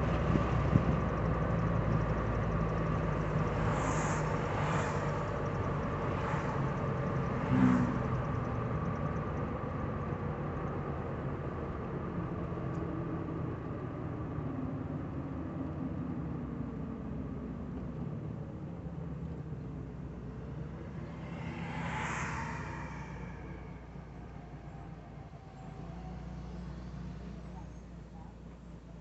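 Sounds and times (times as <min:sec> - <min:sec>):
passing vehicle whooshes: 0:00.0 - 0:10.6, 0:19.1 - 0:27.4
car engine and road noise: 0:00.0 - 0:29.0.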